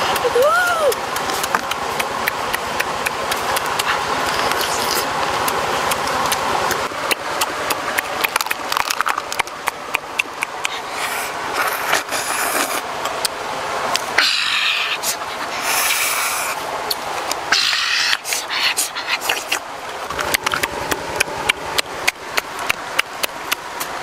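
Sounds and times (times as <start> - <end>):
crab shells cracking: 8.2 - 9.5.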